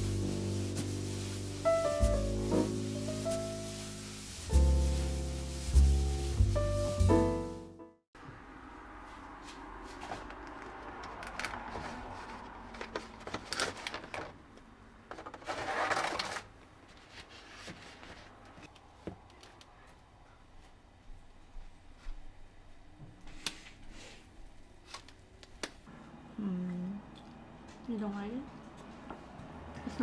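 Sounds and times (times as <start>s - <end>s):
plastic packaging crinkling: 11.2s - 14.4s.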